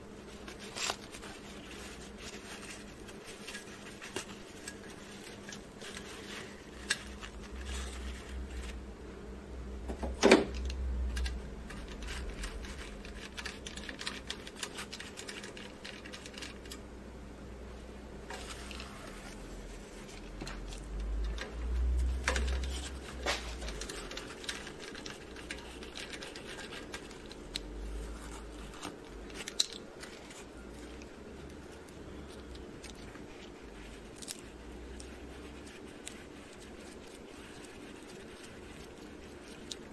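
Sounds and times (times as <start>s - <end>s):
paper rustling: 0.2s - 8.8s, 11.7s - 16.8s, 18.3s - 39.9s
small scratches and clicks: 0.2s - 8.8s, 10.6s - 16.9s, 18.3s - 39.9s.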